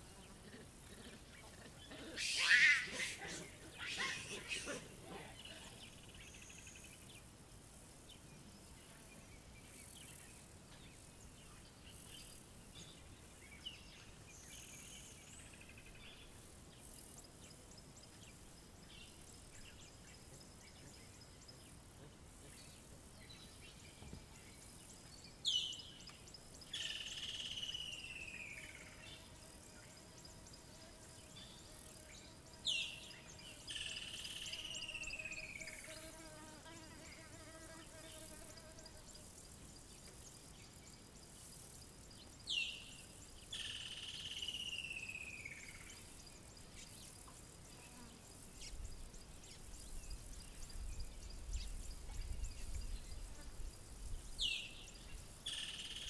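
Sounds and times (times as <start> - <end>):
faint insects: 0.0 - 56.0
baboon screams: 2.0 - 5.3.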